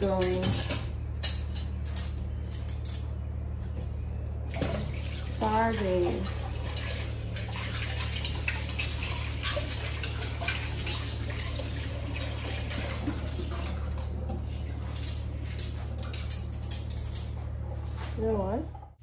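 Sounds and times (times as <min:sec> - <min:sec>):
cutlery clinking in sink: 0:00.0 - 0:03.1, 0:06.0 - 0:11.6
steady low hum: 0:00.0 - 0:19.0
water running from tap: 0:04.5 - 0:14.8.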